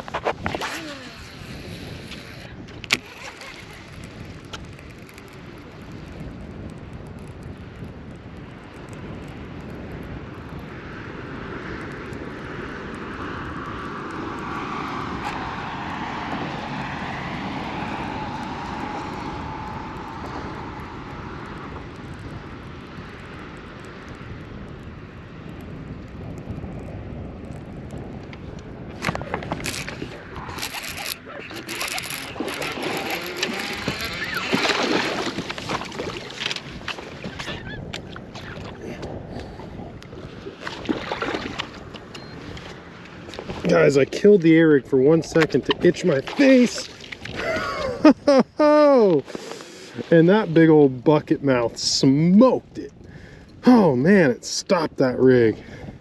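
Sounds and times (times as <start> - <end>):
distant engine passing by: 14.0 - 22.0.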